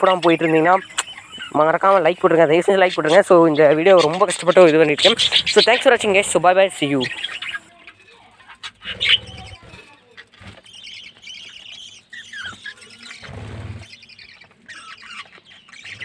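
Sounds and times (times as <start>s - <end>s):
budgerigars chirping: 0.0s - 16.0s.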